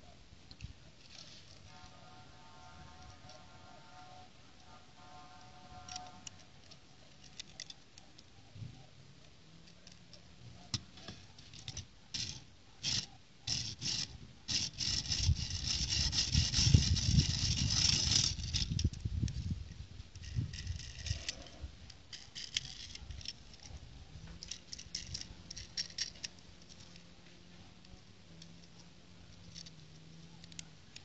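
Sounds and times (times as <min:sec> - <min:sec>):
plastic toy scraping and rubbing: 0:01.0 - 0:08.8, 0:09.6 - 0:31.0
plastic toy pieces clicking: 0:04.6 - 0:08.1, 0:11.5 - 0:19.5, 0:20.1 - 0:23.7, 0:24.4 - 0:27.1, 0:27.8 - 0:31.0.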